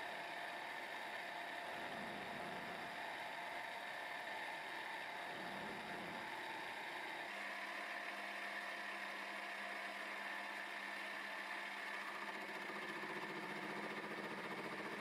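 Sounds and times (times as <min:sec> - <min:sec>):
milling machine hum and whine: 0:00.0 - 0:15.0.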